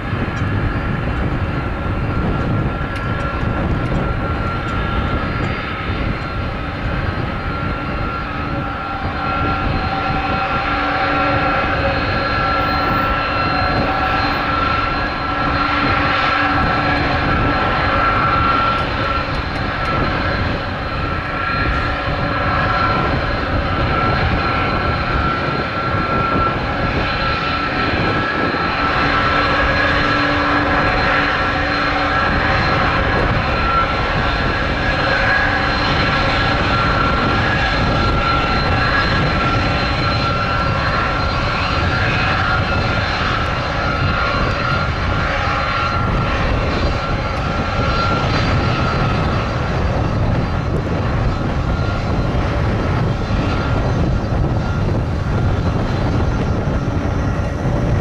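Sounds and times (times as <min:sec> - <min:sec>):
jet engines whining and roaring: 0:00.0 - 0:58.0.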